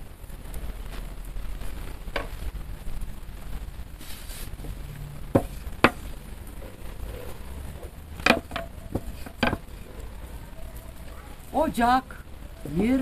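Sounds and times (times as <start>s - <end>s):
rolling pin knocking on wooden board: 5.3s - 6.0s, 8.2s - 9.7s.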